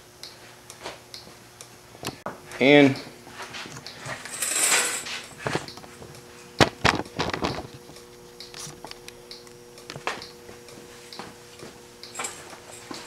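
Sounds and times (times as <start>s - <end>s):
faint steady hum: 0.0s - 13.0s
rustling scrape: 3.4s - 5.5s
sharp clicks and knocks: 5.4s - 11.3s.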